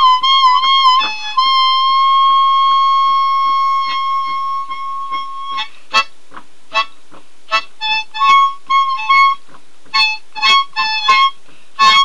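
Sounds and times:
faint tapping beat: 0:00.0 - 0:01.4, 0:03.9 - 0:12.0
harmonica playing: 0:00.0 - 0:12.0.

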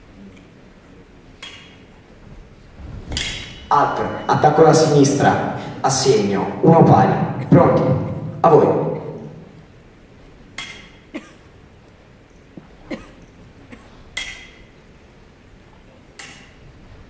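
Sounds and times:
fencing blades clinking: 0:01.4 - 0:01.9, 0:03.1 - 0:04.5, 0:10.5 - 0:11.1, 0:14.1 - 0:14.8, 0:16.2 - 0:16.6.

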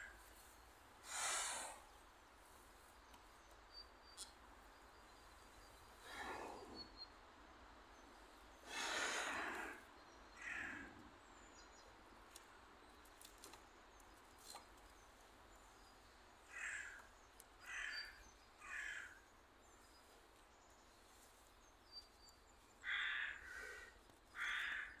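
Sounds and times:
crow cawing: 0:10.4 - 0:10.9, 0:16.5 - 0:19.2, 0:22.8 - 0:25.0.

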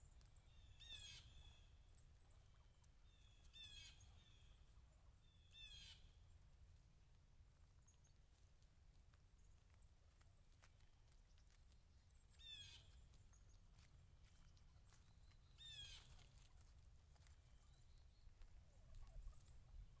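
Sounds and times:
turkeys pecking and stepping: 0:00.0 - 0:20.0
turkey calls: 0:17.6 - 0:20.0.

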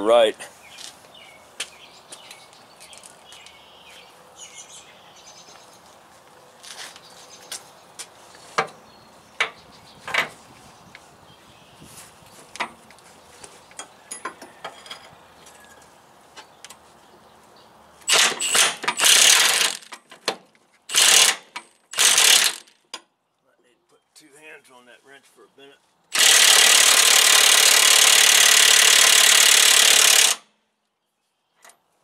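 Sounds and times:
impact wrench hammering: 0:18.1 - 0:20.0, 0:20.9 - 0:22.7, 0:26.1 - 0:30.4.

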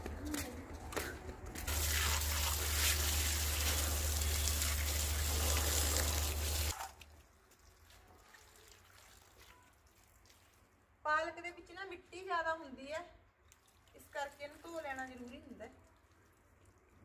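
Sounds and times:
leaves rinsed by hand: 0:01.7 - 0:10.6.

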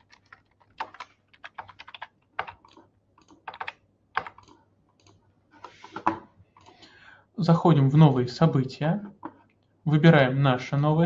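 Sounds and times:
computer keyboard typing: 0:00.0 - 0:05.2.

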